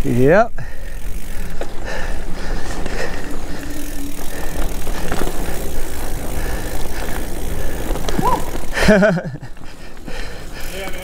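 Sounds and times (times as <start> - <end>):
bike rattling over bumps: 0.0 - 11.0
bike tyres on dirt trail: 0.0 - 11.0.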